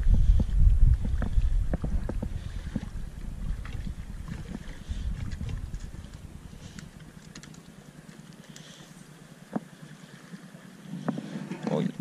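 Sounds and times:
wind buffeting microphone: 0.0 - 6.9
faint small ticks: 5.3 - 9.7.

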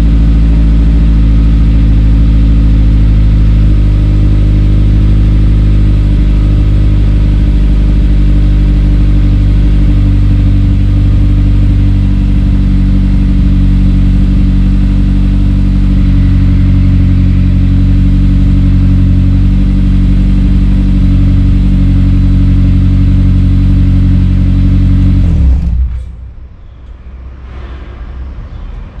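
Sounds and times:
car engine idling: 0.0 - 29.0
faint low rumble: 23.4 - 29.0.

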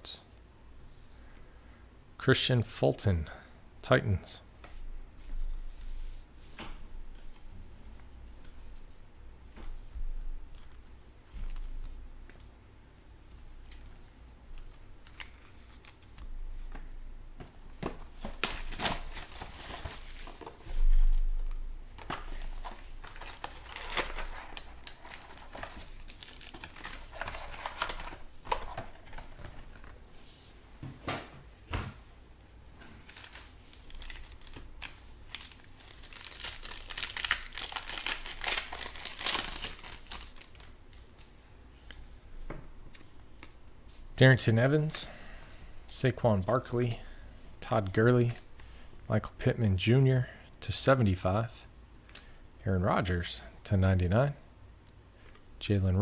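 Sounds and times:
wrapper and cardboard crinkling: 18.2 - 21.0, 22.0 - 29.9, 33.0 - 40.8.

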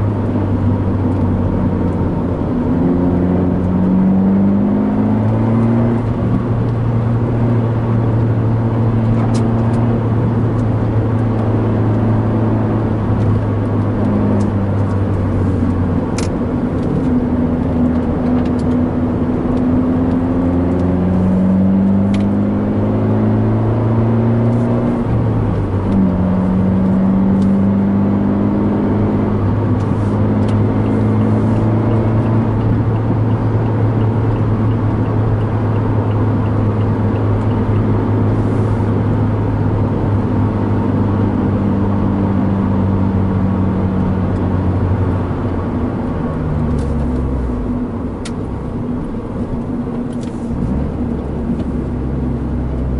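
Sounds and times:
car engine running: 0.0 - 52.9
road and tyre noise: 0.0 - 52.9.

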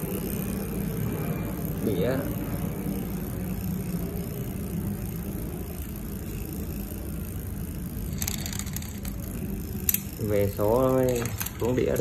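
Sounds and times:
bike chain running over chainrings: 0.0 - 12.0
derailleur shifting clicks: 8.0 - 10.3.

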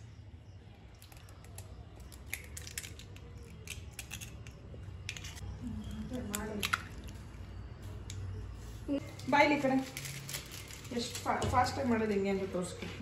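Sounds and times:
eggs cracking: 0.8 - 7.4.

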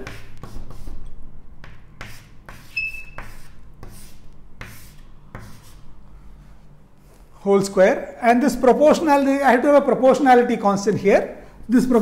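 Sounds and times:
chalk scratching on chalkboard: 0.0 - 6.6
high chalk squeak: 2.0 - 5.8.

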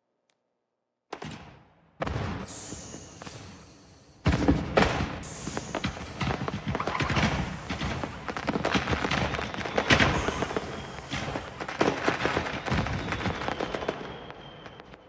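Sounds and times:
fireworks bangs and crackles: 1.2 - 15.0
faint high whistle: 2.4 - 4.2, 5.2 - 7.2, 8.3 - 15.0.

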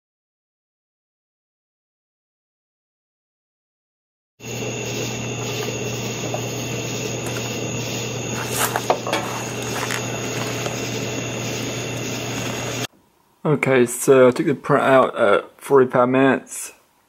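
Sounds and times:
low mechanical hum: 4.4 - 15.6.

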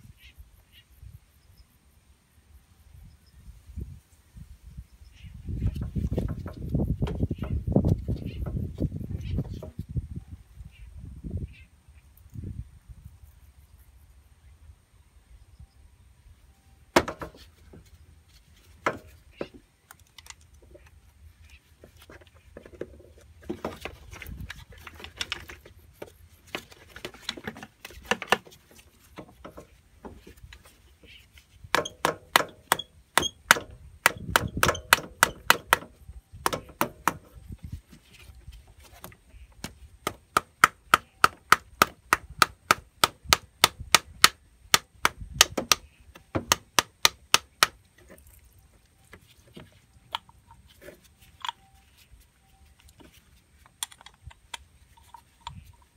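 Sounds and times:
knocks and rustling: 5.6 - 9.9, 16.9 - 43.3.

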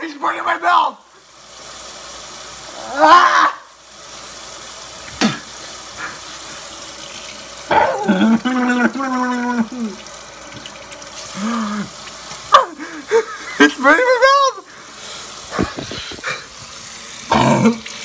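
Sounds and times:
steady hiss: 0.0 - 18.0
man crying out in pain: 2.8 - 3.7, 7.7 - 10.0, 11.3 - 13.3.

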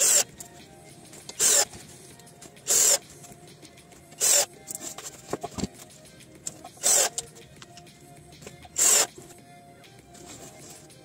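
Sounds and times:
drill driving screws into metal: 0.0 - 0.3, 1.4 - 1.7, 2.7 - 3.0, 4.2 - 4.5, 6.7 - 7.2, 8.8 - 9.2
quiet background music: 0.0 - 11.0.

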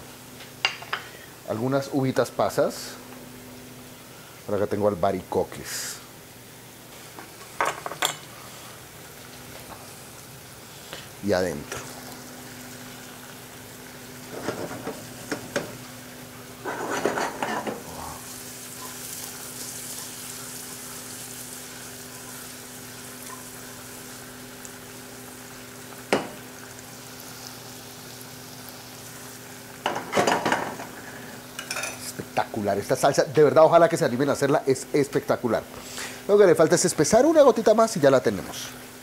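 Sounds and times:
apples sizzling in a frying pan: 0.0 - 39.0
cookware clattering: 7.6 - 8.2, 16.6 - 17.8, 29.8 - 30.9, 31.6 - 32.0
utensil scraping a pan: 16.6 - 17.9.

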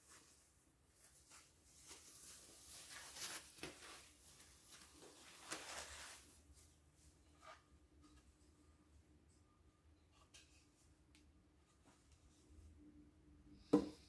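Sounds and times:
foam packing sheet rustling: 1.0 - 6.4.

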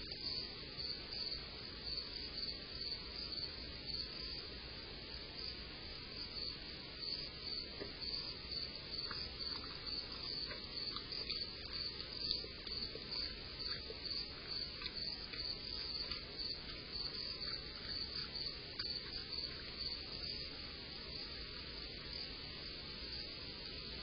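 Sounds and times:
crickets chirping: 0.0 - 24.0.

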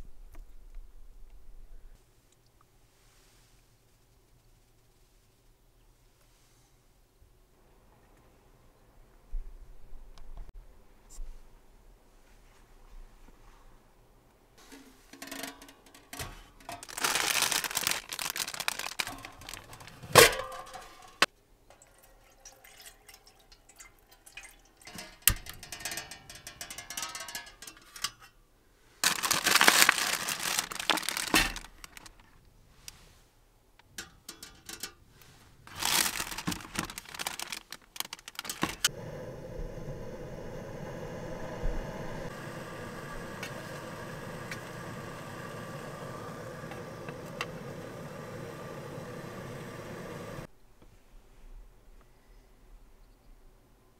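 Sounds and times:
plastic wrapper crinkling: 16.7 - 21.3, 29.0 - 32.4, 35.7 - 38.9
metal mess tin knocks: 20.2 - 21.2, 24.9 - 28.2
camping stove hissing: 38.4 - 50.5.

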